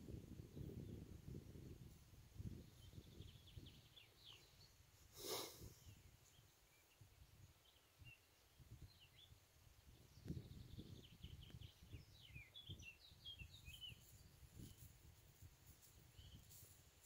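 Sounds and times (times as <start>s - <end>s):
wind rumble on microphone: 0.0s - 5.0s, 5.6s - 17.0s
faint birdsong chirps: 0.1s - 17.0s
breathy puff: 5.1s - 5.8s.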